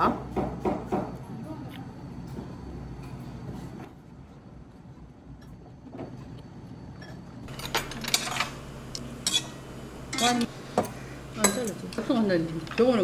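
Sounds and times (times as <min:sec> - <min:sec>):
low room hum: 0:00.1 - 0:13.0
dishes and cutlery clinking: 0:07.0 - 0:08.6, 0:09.2 - 0:10.5.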